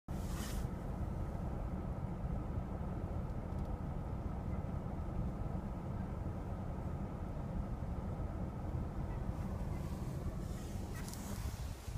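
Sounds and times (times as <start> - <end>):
car engine rumble inside cabin: 0.1 - 11.9
brief hiss: 0.2 - 0.7.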